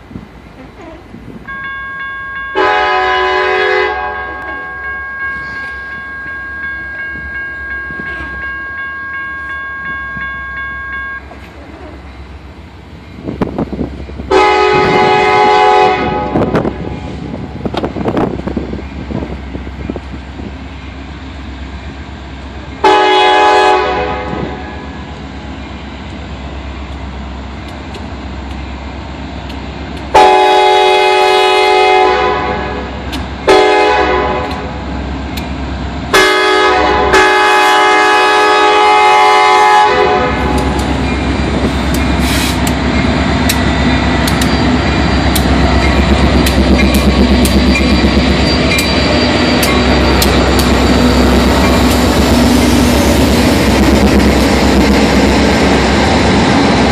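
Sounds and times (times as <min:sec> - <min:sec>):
locomotive engines rumbling: 0:00.0 - 0:56.9
locomotive air horn blasts: 0:02.6 - 0:04.8, 0:14.3 - 0:16.9, 0:22.8 - 0:24.8, 0:30.1 - 0:34.7, 0:36.1 - 0:40.7.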